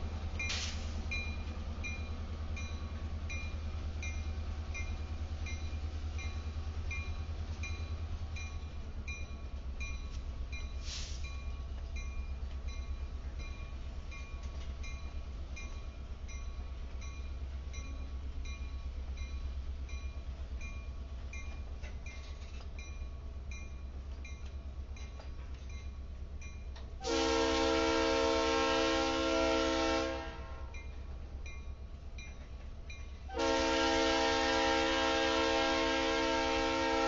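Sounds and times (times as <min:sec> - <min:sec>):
freight train rumbling: 0:00.0 - 0:37.0
brief hiss: 0:00.5 - 0:01.1, 0:10.8 - 0:11.4.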